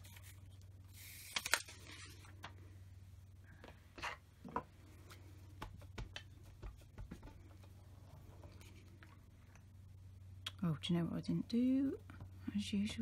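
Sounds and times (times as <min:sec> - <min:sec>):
hands handling paper: 0:00.0 - 0:02.6
low steady hum: 0:00.0 - 0:13.0.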